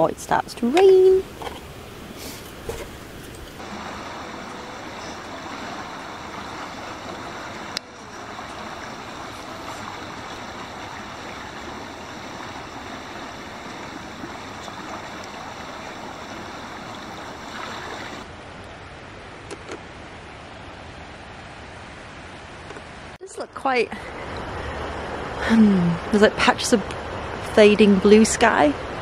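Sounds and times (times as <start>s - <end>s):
river water rushing: 1.2s - 23.2s.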